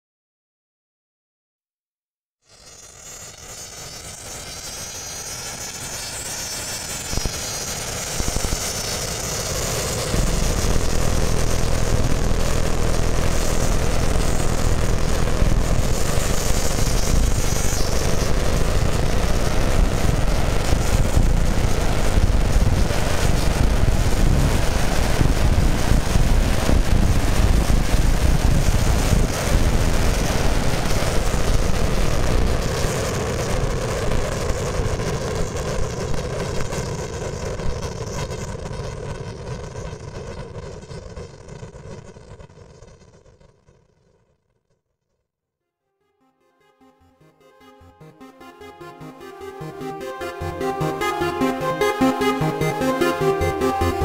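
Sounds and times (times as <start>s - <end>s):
jet airliner engines: 2.5s - 41.5s, 47.6s - 54.0s.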